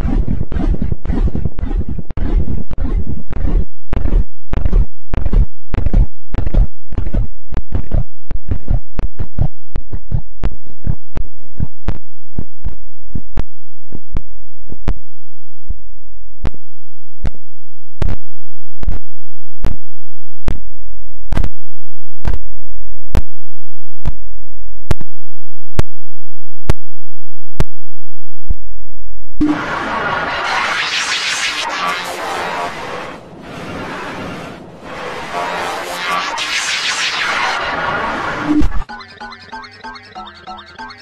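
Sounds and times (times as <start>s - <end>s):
stuttering repeated sound snippet: 29.4s - 41.0s.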